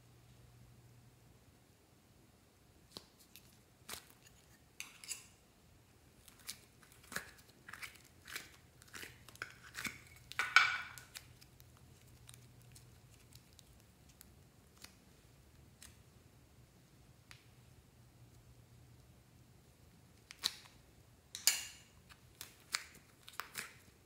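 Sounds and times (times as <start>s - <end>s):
sticky clay peeling: 6.2s - 16.1s, 22.0s - 24.0s.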